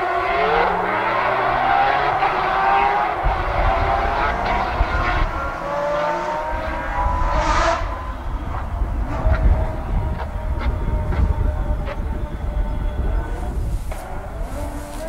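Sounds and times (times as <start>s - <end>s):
rally car engine accelerating: 0.0s - 15.0s
wind buffeting microphone: 0.0s - 15.0s.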